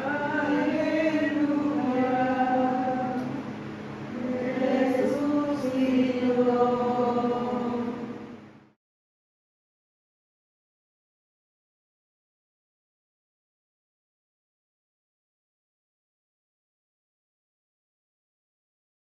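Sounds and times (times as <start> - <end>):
group chanting in unison: 0.0 - 3.3, 4.1 - 8.1.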